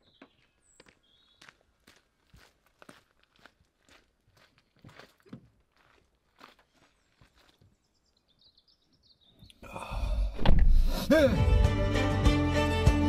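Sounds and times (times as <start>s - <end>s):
footsteps on gravel: 0.0s - 7.8s.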